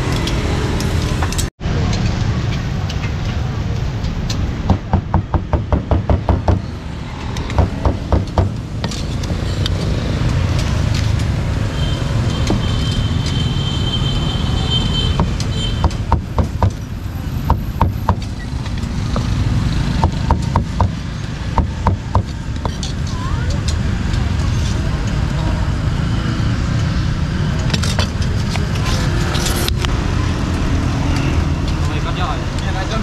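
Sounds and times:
street traffic hum: 0:00.0 - 0:33.0
cleaver chopping meat: 0:20.0 - 0:21.0.

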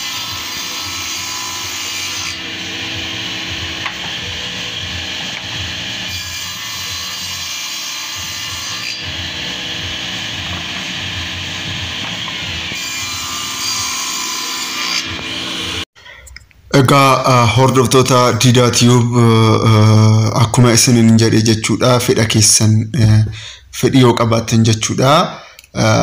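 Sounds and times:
saw blade cutting wood: 0:00.0 - 0:15.9
table saw running: 0:00.0 - 0:15.9.

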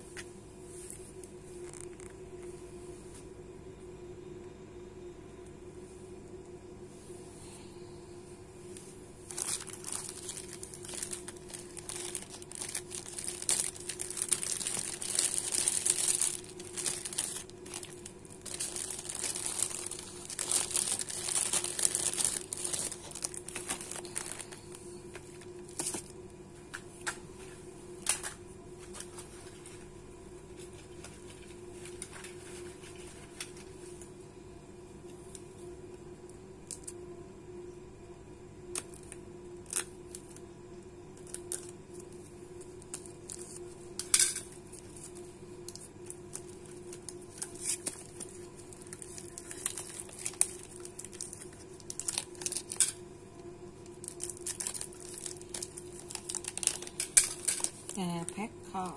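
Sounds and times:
plastic bags crinkling: 0:09.2 - 0:26.1, 0:41.2 - 0:53.0, 0:53.8 - 0:58.4
sharp plastic crackles: 0:09.3 - 0:24.8, 0:42.7 - 0:53.0, 0:53.8 - 0:58.2.

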